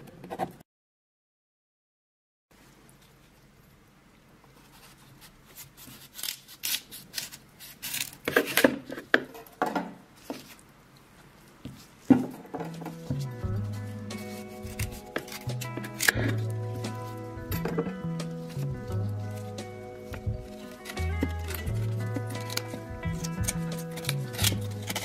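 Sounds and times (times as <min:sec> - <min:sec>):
knife slicing radish skin: 0:04.8 - 0:08.7, 0:13.1 - 0:17.1, 0:18.2 - 0:25.0
background music: 0:12.4 - 0:25.0.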